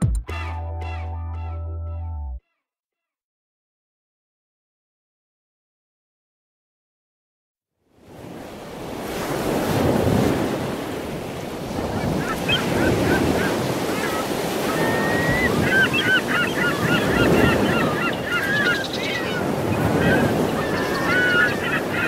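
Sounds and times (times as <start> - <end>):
surf washing in: 8.0 - 22.0
birds calling: 11.8 - 22.0.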